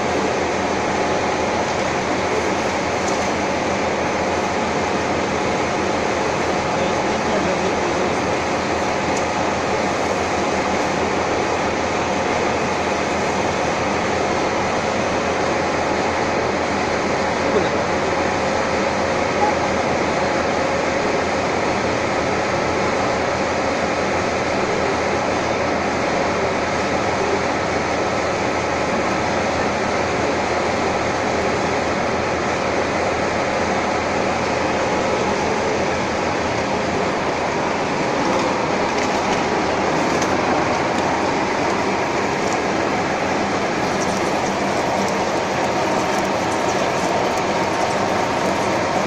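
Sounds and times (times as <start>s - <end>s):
lathe running: 0.0s - 21.2s, 22.3s - 49.0s.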